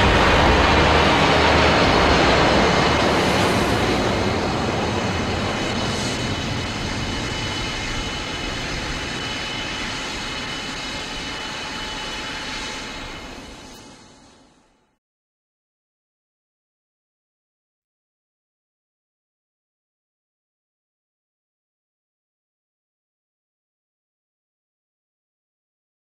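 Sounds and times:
nuclear explosion roar: 0.0s - 11.2s.

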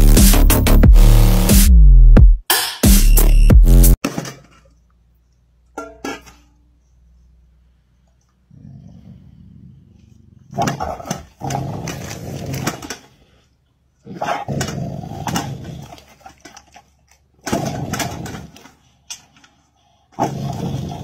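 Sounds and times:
dog growling: 8.5s - 13.4s, 14.0s - 16.5s, 20.1s - 21.0s.

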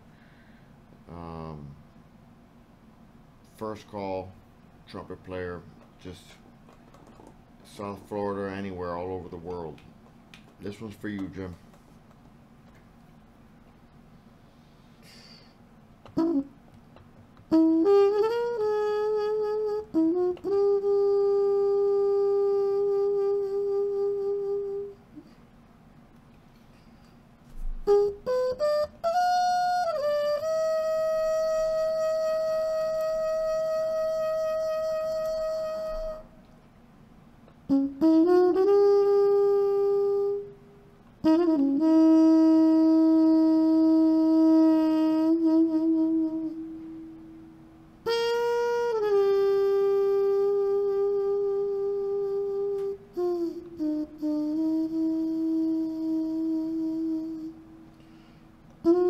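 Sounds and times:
solo trumpet melody: 16.1s - 16.7s, 17.5s - 25.1s, 27.6s - 36.4s, 37.7s - 57.9s.

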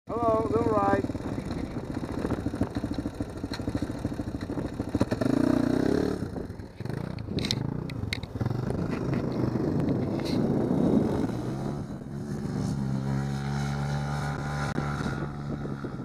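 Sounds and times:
quad engine idling and revving: 0.1s - 16.0s
sharp clicks and clatter: 1.0s - 10.6s.

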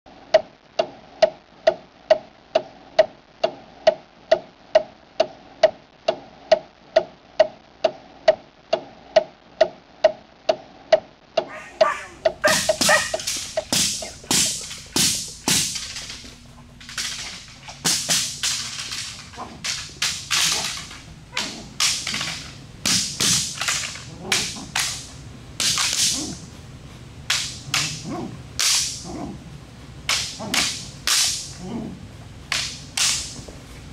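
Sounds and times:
sharp evenly spaced ticks: 0.3s - 29.2s
stick cracks and swishes: 11.6s - 26.5s, 27.2s - 29.2s, 30.0s - 31.7s, 32.5s - 33.6s.

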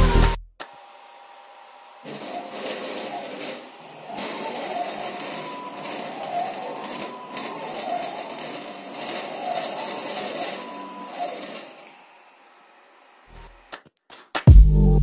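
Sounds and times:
machine table motors moving: 0.6s - 13.7s
rattling buzz of metal covers: 2.0s - 12.4s.

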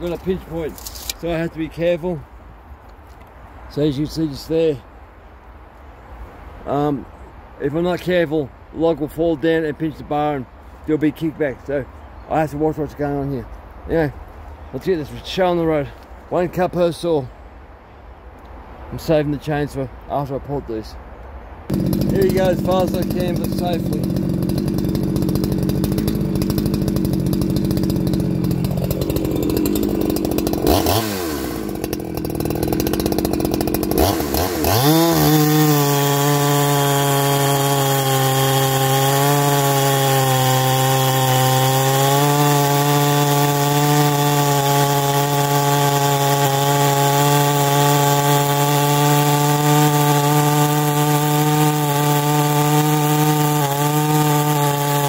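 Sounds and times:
chainsaw cutting a log: 21.7s - 55.0s.

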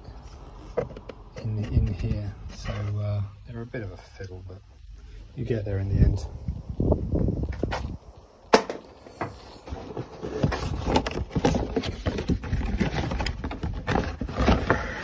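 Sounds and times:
plastic scraping: 0.3s - 3.0s, 9.2s - 15.0s.

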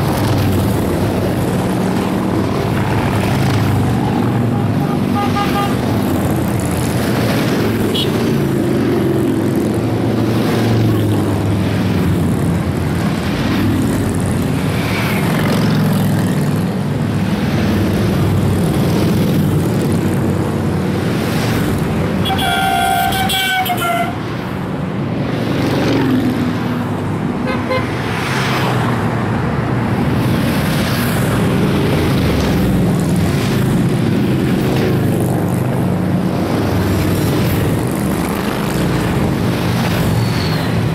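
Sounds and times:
motorcycles riding past: 0.0s - 23.2s, 25.2s - 29.1s
horn toot: 4.3s - 5.8s, 22.2s - 24.2s.

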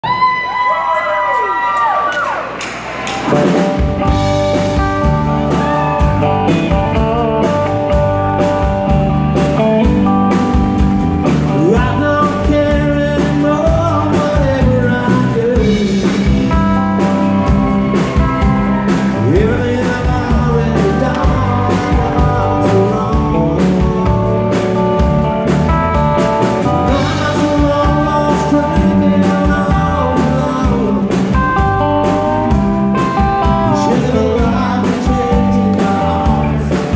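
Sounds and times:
live rock band playing: 2.8s - 36.9s
man singing: 11.2s - 24.8s, 26.6s - 36.9s.

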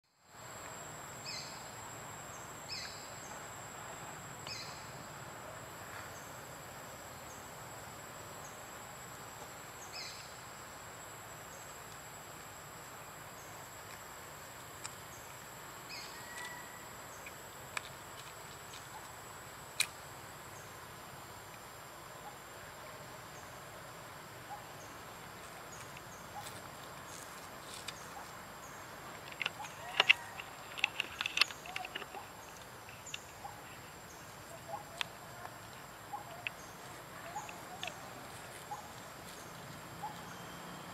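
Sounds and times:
soft background hiss: 0.1s - 40.9s
sharp clicks: 29.2s - 33.4s.

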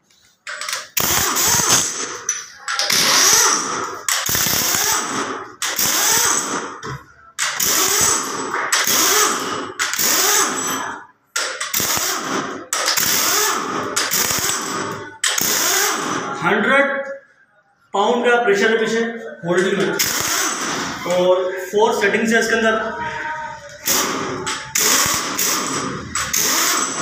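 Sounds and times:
pneumatic impact wrench hammering: 0.4s - 16.4s, 20.0s - 21.0s, 23.8s - 27.0s.

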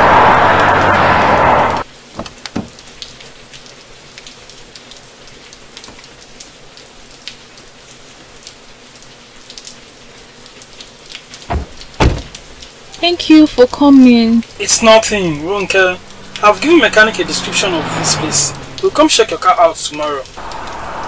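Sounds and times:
rain falling: 0.0s - 21.0s
sharp raindrop hits: 11.1s - 13.0s, 13.8s - 21.0s.

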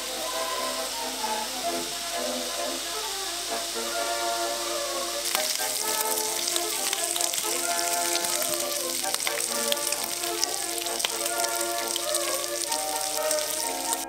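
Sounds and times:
background music with held notes: 0.0s - 14.0s
bacon sizzling in frying pan: 5.2s - 14.0s.

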